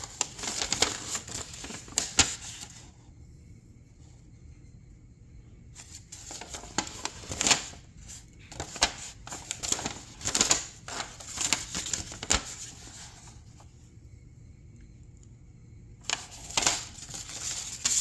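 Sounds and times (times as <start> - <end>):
paper rustling and crinkling: 0.0 - 2.9, 5.8 - 13.7, 16.0 - 18.0.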